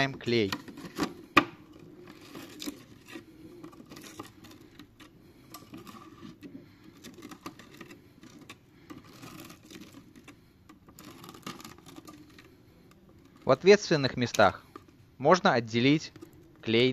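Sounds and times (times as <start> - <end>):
adhesive tape crackling: 0.3 - 15.1, 15.8 - 16.9.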